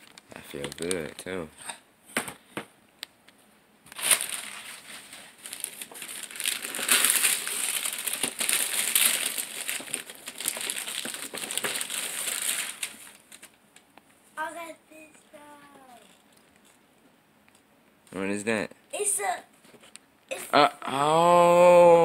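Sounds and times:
wrapping paper crinkling and rustling: 0:00.0 - 0:01.4, 0:03.9 - 0:13.6.

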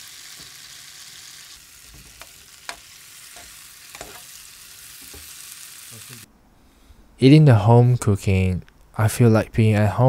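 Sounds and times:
vegetables sizzling in a frying pan: 0:00.0 - 0:06.3
metal spoon scraping a pan: 0:02.0 - 0:05.4.

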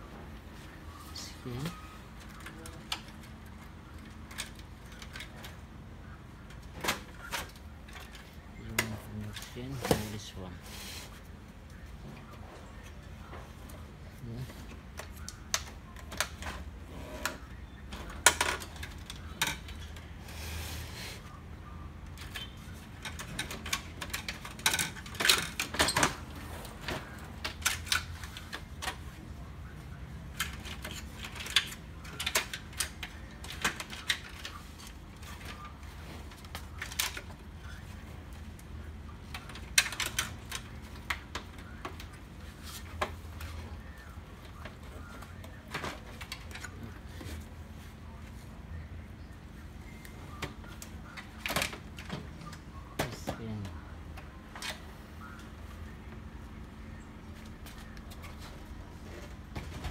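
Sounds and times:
plastic printer parts clattering: 0:22.1 - 0:29.2, 0:30.2 - 0:48.4, 0:50.3 - 0:53.7, 0:57.4 - 0:59.9.

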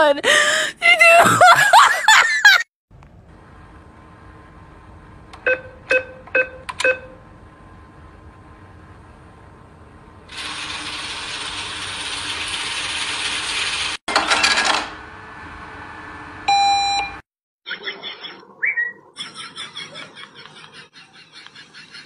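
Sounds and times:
cash machine dispensing money: 0:10.3 - 0:15.0.

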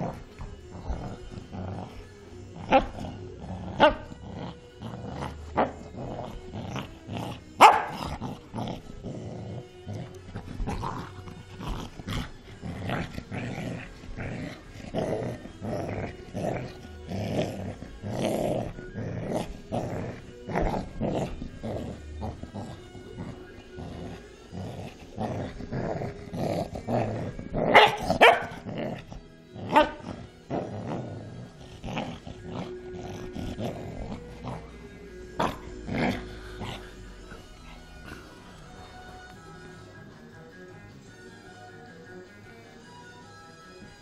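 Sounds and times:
dog growling: 0:00.0 - 0:40.4
dog barking: 0:07.6 - 0:08.1, 0:27.7 - 0:28.6.

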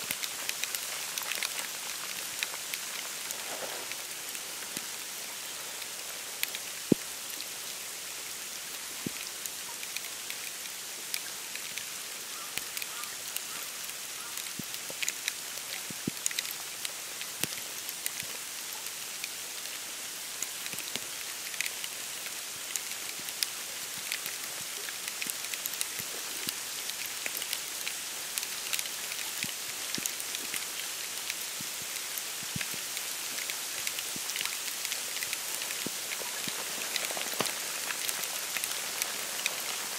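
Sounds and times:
ticks of flakes and drops landing: 0:00.0 - 0:05.2, 0:22.7 - 0:39.9
wet snow hissing: 0:00.0 - 0:08.9, 0:25.7 - 0:39.9.

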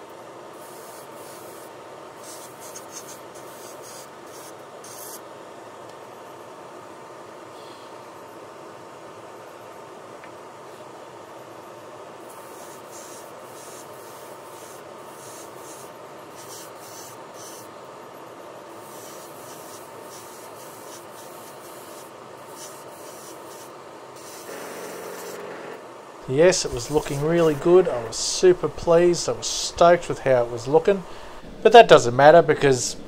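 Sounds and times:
steady background hiss: 0:00.0 - 0:33.0
airbrush spraying hiss: 0:00.6 - 0:05.2, 0:12.2 - 0:17.7, 0:18.7 - 0:25.5, 0:26.6 - 0:31.0.

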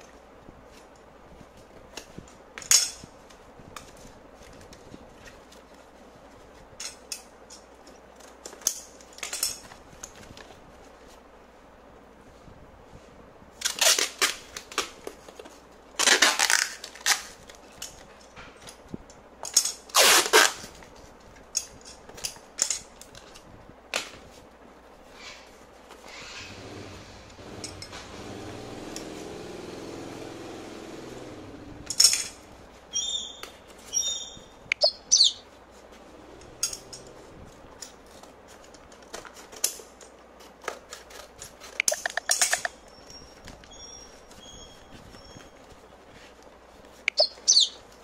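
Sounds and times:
packing tape tearing off roll: 0:13.6 - 0:18.7, 0:19.5 - 0:21.1, 0:37.8 - 0:42.8.

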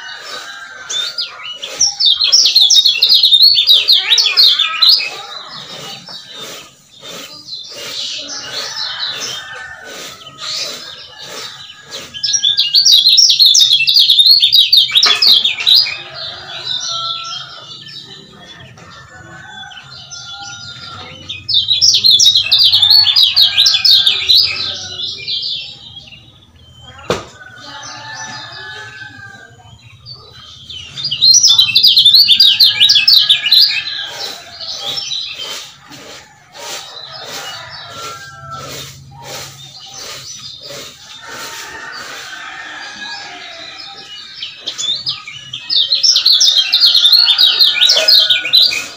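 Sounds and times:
bird trilling: 0:00.0 - 0:18.1, 0:19.8 - 0:25.8.

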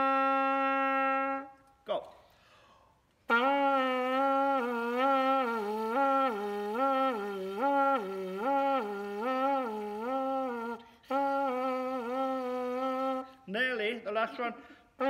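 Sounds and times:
buzzing trumpet pipe note: 0:00.0 - 0:01.6, 0:03.3 - 0:13.4.

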